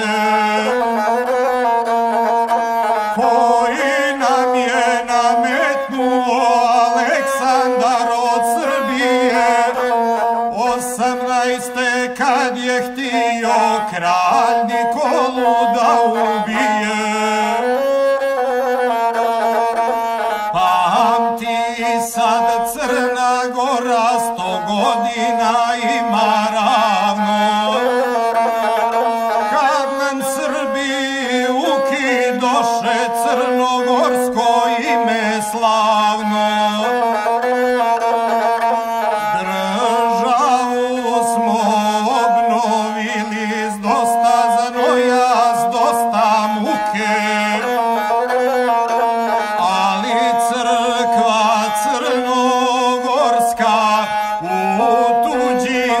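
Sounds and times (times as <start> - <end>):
bowed single-string fiddle melody: 0.0 - 56.0.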